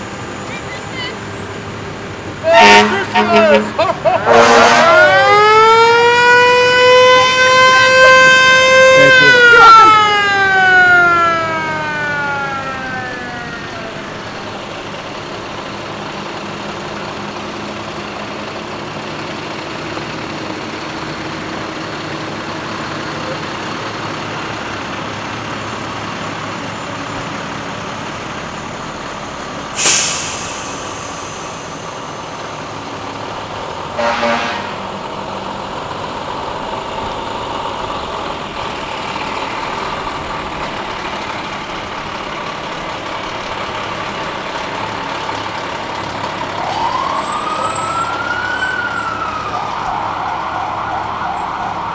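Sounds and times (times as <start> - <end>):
truck engine idling: 0.0 - 48.2
truck horn blast: 2.4 - 10.1, 29.8 - 31.8, 33.9 - 34.9
fire truck siren winding down: 2.4 - 51.9
air brakes hissing: 29.7 - 33.2.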